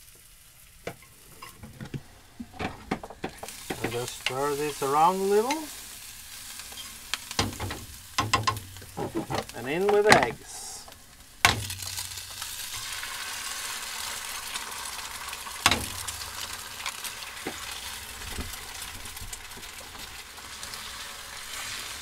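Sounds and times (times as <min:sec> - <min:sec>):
eggs and onions sizzling: 0:00.0 - 0:22.0
egg cracking knock: 0:07.4 - 0:09.4, 0:11.4 - 0:12.0.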